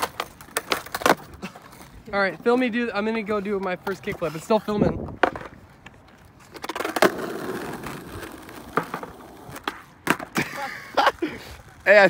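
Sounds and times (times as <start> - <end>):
skateboard clacking on ground: 0.0 - 10.6
skateboard wheels rolling on asphalt: 0.0 - 12.0.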